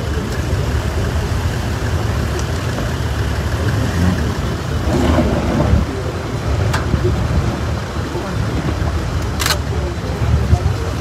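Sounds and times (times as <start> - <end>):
indistinct voices: 0.0 - 11.0
low crowd rumble: 0.0 - 11.0
sharp click: 9.2 - 9.6.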